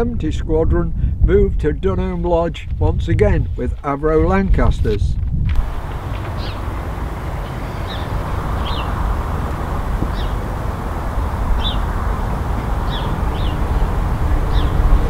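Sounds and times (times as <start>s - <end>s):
wind rumbling on microphone: 0.0s - 15.0s
small bird chirping: 5.9s - 9.1s, 10.1s - 10.4s, 11.6s - 11.9s, 12.8s - 13.9s, 14.5s - 14.9s.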